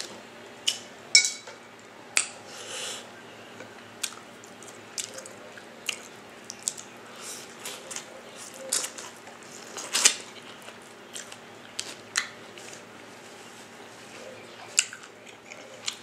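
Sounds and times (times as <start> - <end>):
biting and chewing: 4.0 - 13.3, 14.0 - 16.0
wet squishes of food: 4.0 - 16.0
crackling rustle: 4.1 - 16.0.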